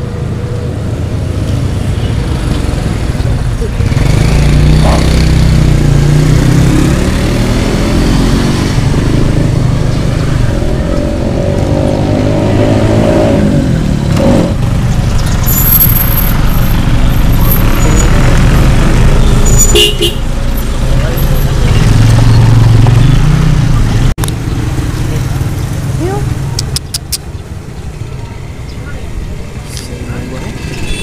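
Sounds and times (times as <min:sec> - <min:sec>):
motor vehicle engines running: 0:00.0 - 0:31.0
vehicle passing by: 0:01.3 - 0:15.4.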